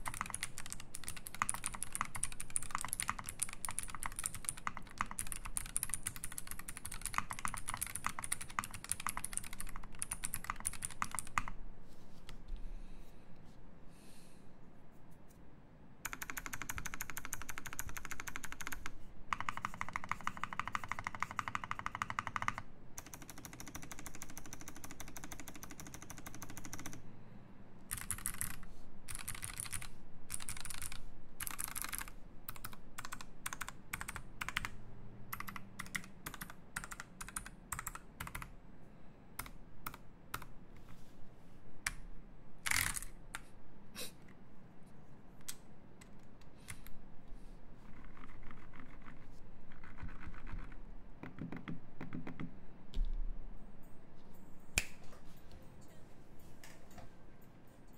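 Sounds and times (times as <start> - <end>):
typing on mechanical keyboard: 0.0 - 11.6, 16.0 - 27.0, 27.9 - 38.6, 39.4 - 40.5, 42.6 - 43.5, 47.8 - 52.5.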